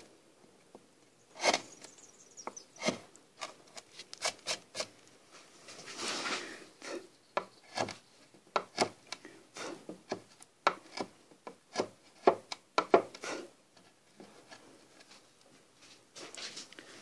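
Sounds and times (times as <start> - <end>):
wood chisel slicing cuts: 1.4 - 1.7, 2.8 - 4.9, 7.4 - 8.0, 8.6 - 13.5.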